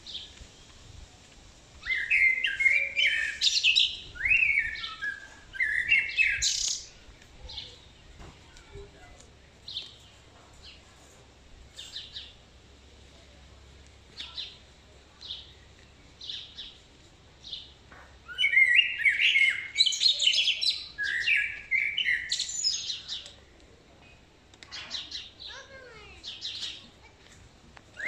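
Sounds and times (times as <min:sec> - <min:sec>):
songbird singing rapid song: 0:00.0 - 0:10.9, 0:11.6 - 0:27.1
songbird chirping: 0:00.0 - 0:28.0.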